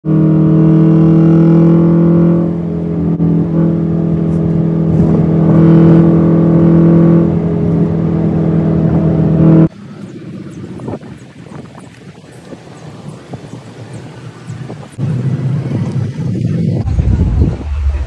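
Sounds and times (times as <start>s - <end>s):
car engine droning in cabin: 0.0s - 18.0s.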